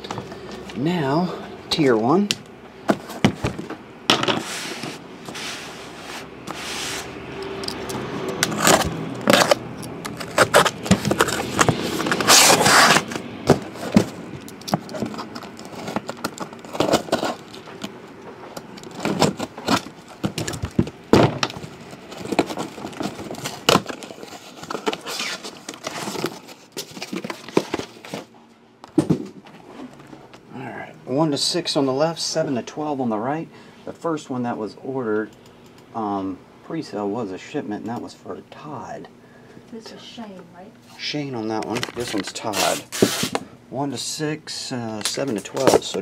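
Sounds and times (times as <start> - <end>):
cardboard and plastic wrap crackling: 8.4 - 14.2, 14.8 - 18.0, 18.8 - 28.3.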